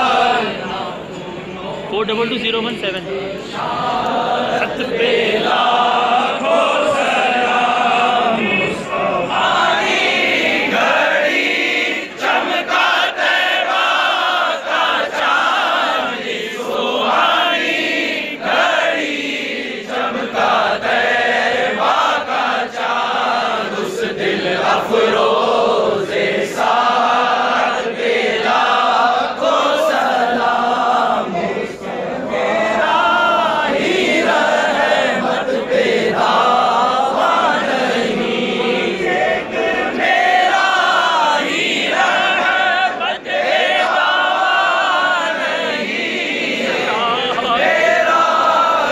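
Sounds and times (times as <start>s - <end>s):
crowd of men chanting: 0.0s - 48.9s.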